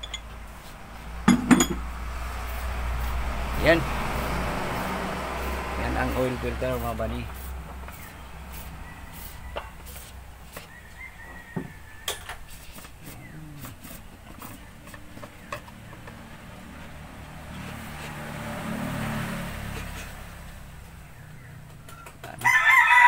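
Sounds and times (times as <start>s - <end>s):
vehicle passing: 0.0s - 23.0s
rooster crowing: 8.0s - 13.4s, 22.4s - 23.0s.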